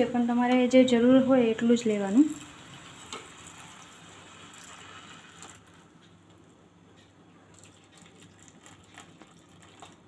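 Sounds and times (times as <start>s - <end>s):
light sizzle and crackle: 0.0s - 10.0s
milk pouring: 2.2s - 5.9s, 7.5s - 10.0s.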